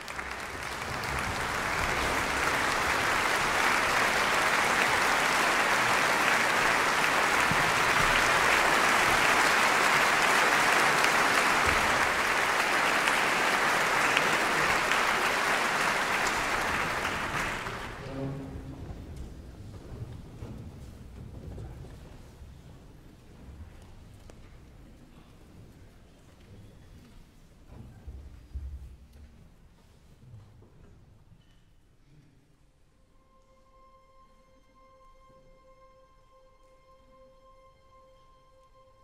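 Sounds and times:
audience applauding: 0:00.0 - 0:19.3.

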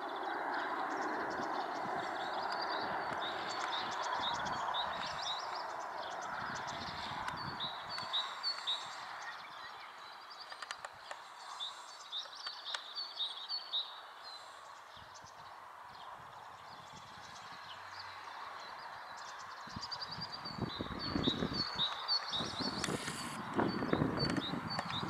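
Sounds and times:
distant jet engines roaring: 0:00.0 - 0:12.1
bird chirping: 0:00.0 - 0:25.0.

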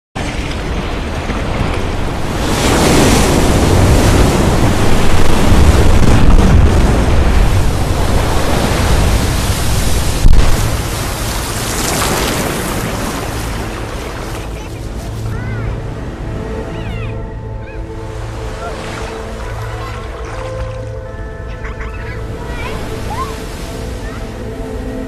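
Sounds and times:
surf crashing against rocks: 0:00.2 - 0:15.5.

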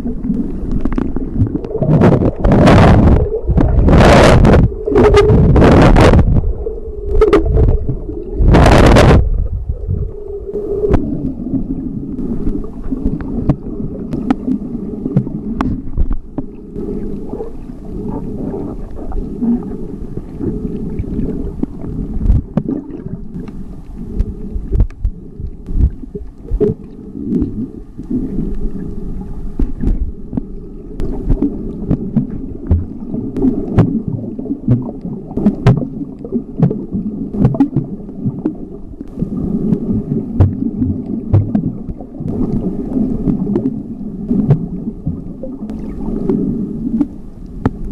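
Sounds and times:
low underwater rumble: 0:00.0 - 0:47.9
underwater rushing bursts: 0:00.0 - 0:47.9
faint clicks and pops: 0:12.2 - 0:16.5, 0:21.0 - 0:28.6, 0:29.6 - 0:39.8, 0:40.4 - 0:42.6, 0:46.9 - 0:47.9.

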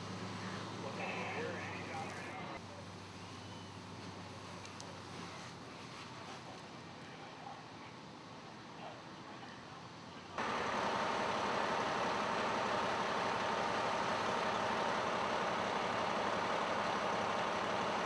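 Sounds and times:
diesel engine idling: 0:00.0 - 0:04.4, 0:10.4 - 0:18.0.

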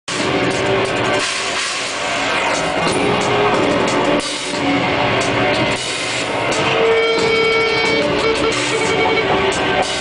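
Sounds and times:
drum kit with cymbal hits: 0:00.1 - 0:10.0.

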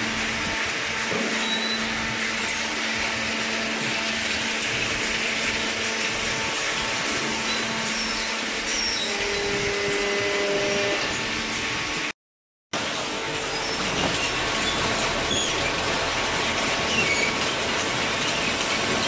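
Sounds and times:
machinery whirring: 0:00.0 - 0:12.1.

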